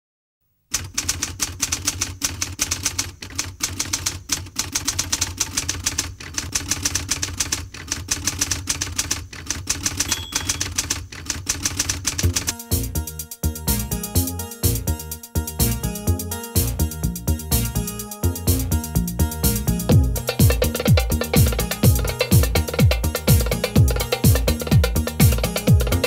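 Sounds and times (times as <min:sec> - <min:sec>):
typewriter keys clacking: 0:00.7 - 0:12.6
short ringing tone: 0:10.1 - 0:10.7.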